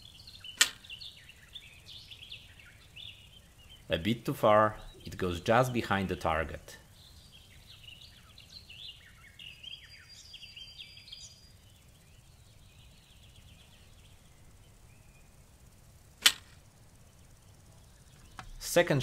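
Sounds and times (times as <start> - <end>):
birds chirping faintly: 0.0 - 19.0
bowstring snap: 0.6 - 1.0, 16.2 - 16.6.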